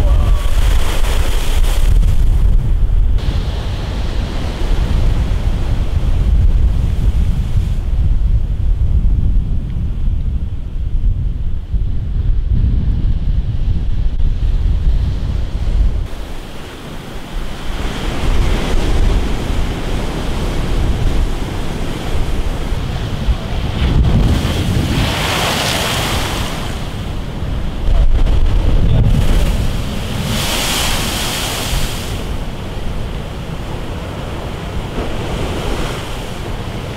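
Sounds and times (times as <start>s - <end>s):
surf breaking against a sea wall: 0.0s - 2.9s
wind buffeting microphone: 0.0s - 36.9s.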